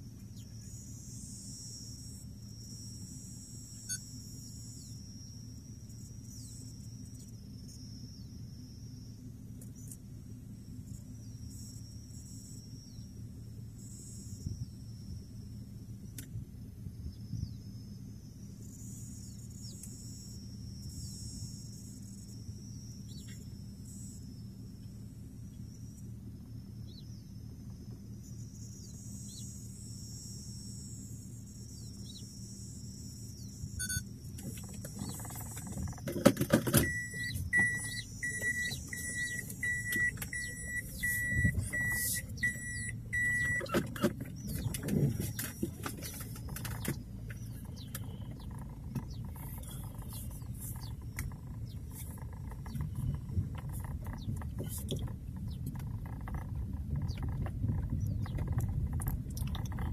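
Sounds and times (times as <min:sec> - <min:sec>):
car engine idling: 0:00.0 - 0:59.9
high steady whine: 0:00.0 - 0:59.9
car rumbling over dirt track: 0:02.1 - 0:59.9
electronic beep: 0:03.7 - 0:04.9, 0:33.4 - 0:34.1, 0:36.7 - 0:45.2
knocks and rattles from bumps: 0:34.5 - 0:37.8.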